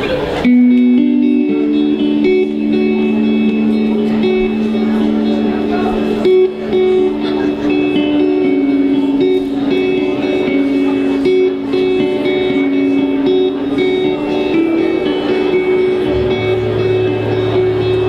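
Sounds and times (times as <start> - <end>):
live band playing: 0.0 - 18.0
picked guitar notes: 0.0 - 18.0.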